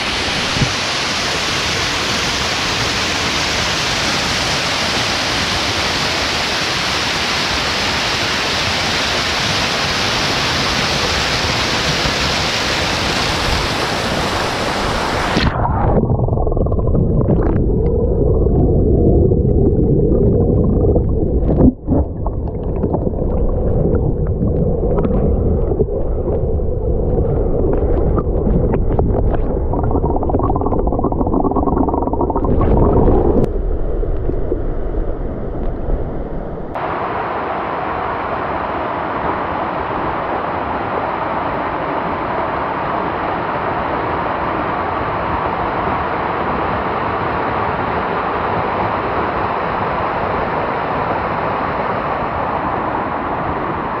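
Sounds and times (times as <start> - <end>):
waterfall rushing: 0.0 - 15.6
muffled underwater rumble: 10.7 - 36.8.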